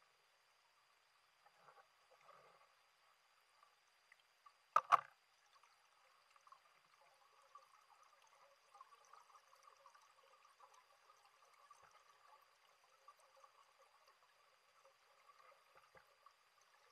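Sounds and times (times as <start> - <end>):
sharp clicks: 4.8 - 5.1.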